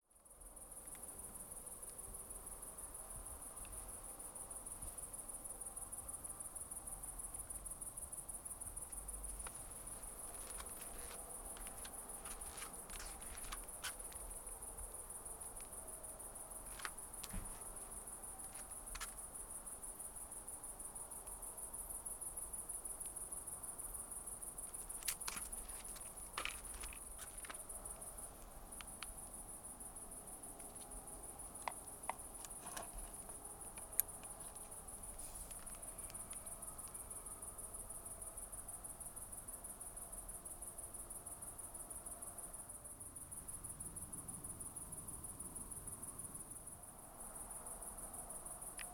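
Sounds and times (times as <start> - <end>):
crickets chirping: 0.0 - 48.9.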